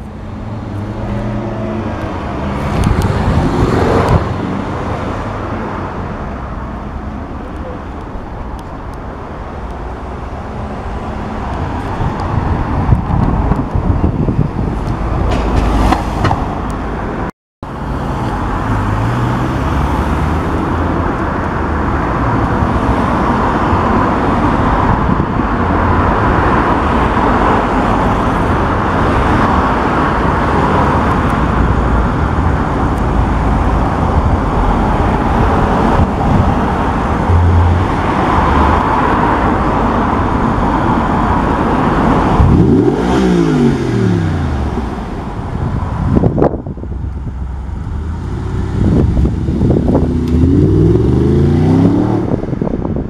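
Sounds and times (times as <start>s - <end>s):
car approaching with road noise: 0.0s - 53.0s
car engine revving: 34.6s - 40.5s, 41.6s - 45.3s, 47.4s - 52.4s.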